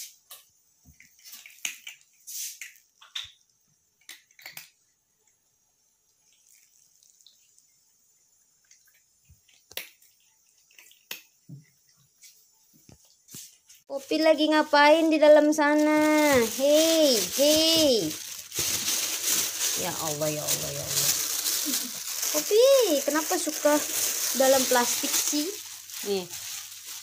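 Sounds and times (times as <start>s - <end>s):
cat crunching dry kibble: 4.0s - 4.8s, 15.1s - 27.0s.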